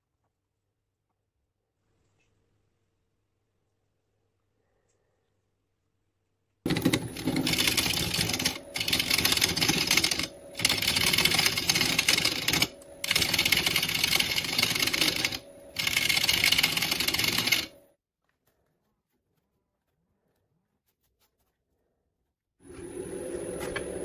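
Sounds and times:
gouge cutting spinning wood: 6.7s - 17.8s
wood lathe running: 6.7s - 17.8s.

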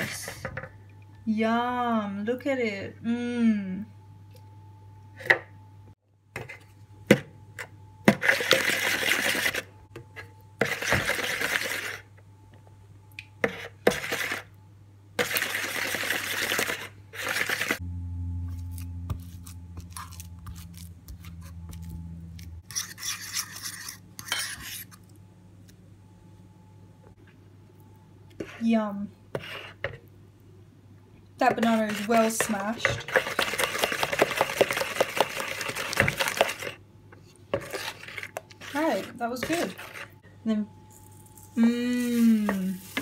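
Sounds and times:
low hum: 2.9s - 6.2s, 17.7s - 22.7s, 25.0s - 28.3s
wooden spoon scraping plastic bowl: 13.4s - 14.5s, 22.7s - 25.0s, 29.3s - 30.0s, 31.4s - 40.2s, 42.4s - 43.0s
fork mashing banana in bowl: 18.5s - 25.1s, 31.4s - 40.2s.

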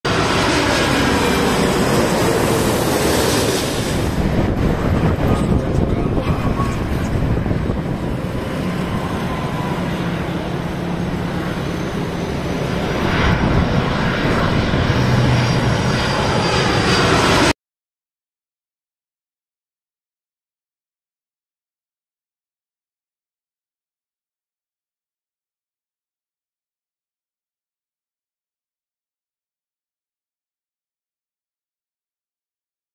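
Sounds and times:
jet engine rumble with whine: 0.1s - 17.6s.

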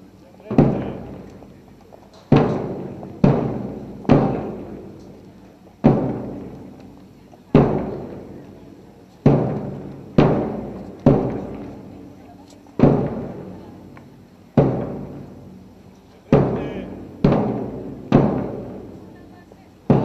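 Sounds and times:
bass drums struck: 0.5s - 1.4s, 2.3s - 7.0s, 7.6s - 8.6s, 9.2s - 12.1s, 12.8s - 14.0s, 14.6s - 19.2s.

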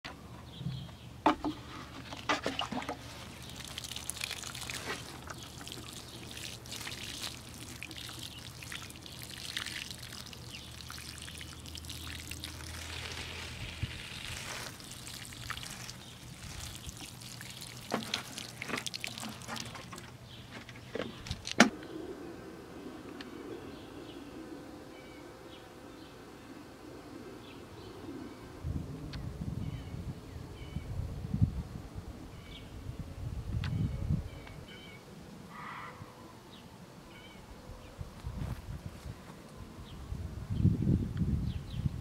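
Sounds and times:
water pouring onto soil: 2.5s - 20.1s.

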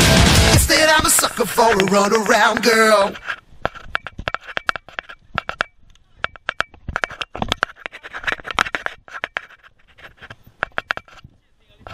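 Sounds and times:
tyres scraping on loose dirt: 0.6s - 5.7s.

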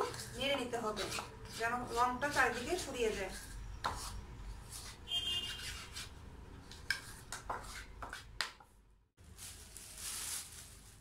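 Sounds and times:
spoon scraping mixing bowl: 0.0s - 8.4s.

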